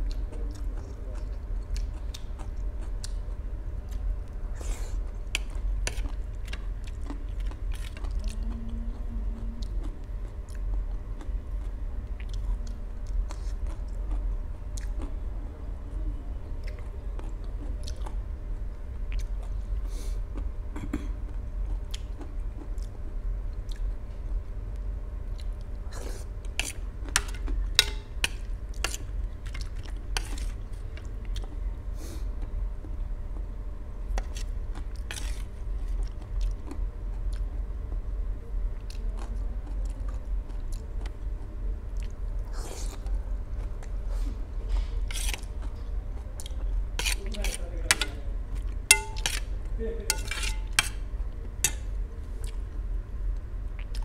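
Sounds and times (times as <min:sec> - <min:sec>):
person chewing noodles: 0:00.0 - 0:15.2, 0:16.6 - 0:18.3, 0:19.0 - 0:20.6, 0:21.2 - 0:24.0, 0:25.2 - 0:33.5, 0:34.1 - 0:37.6, 0:38.7 - 0:52.8, 0:53.7 - 0:54.0
steady low hum: 0:00.0 - 0:54.0
spoon scraping a steel plate: 0:48.9 - 0:49.5, 0:50.1 - 0:51.0.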